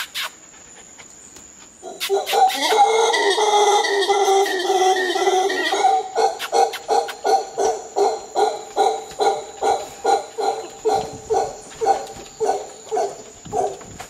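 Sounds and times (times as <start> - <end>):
howler monkey grunting calls: 1.8 - 11.6.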